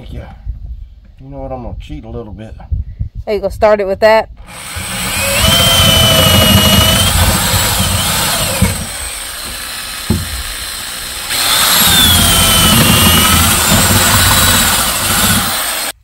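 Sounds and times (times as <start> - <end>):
drill click: 4.4 - 16.0
electric drill whining: 4.4 - 16.0.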